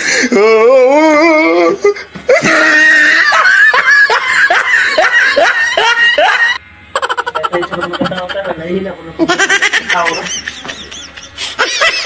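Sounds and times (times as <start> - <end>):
person laughing hard: 2.3 - 8.4, 9.2 - 12.0.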